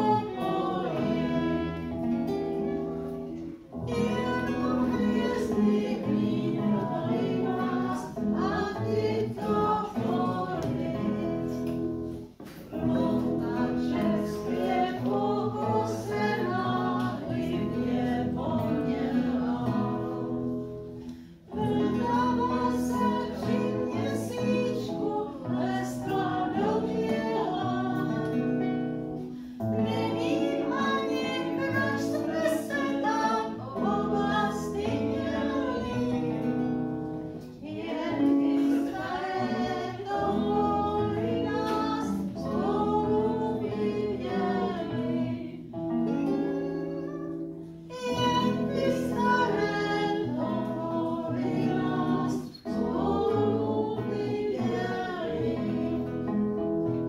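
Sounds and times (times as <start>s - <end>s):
voices singing a popular song: 0.0s - 56.6s
acoustic guitar: 0.0s - 57.0s.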